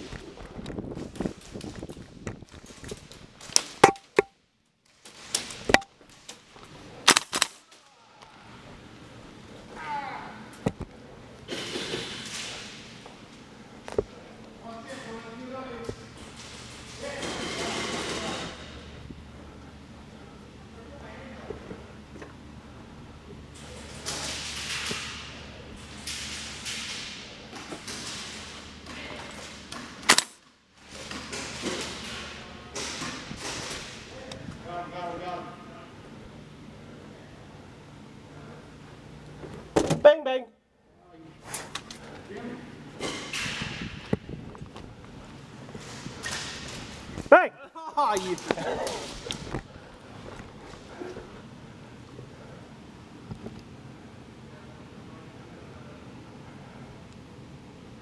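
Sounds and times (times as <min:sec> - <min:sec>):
airsoft rifle shots: 0:07.0 - 0:07.6.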